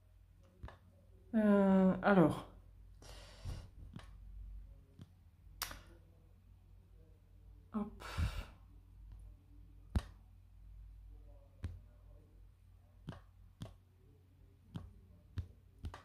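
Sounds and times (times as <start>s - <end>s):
woman sighing: 7.8s - 8.6s.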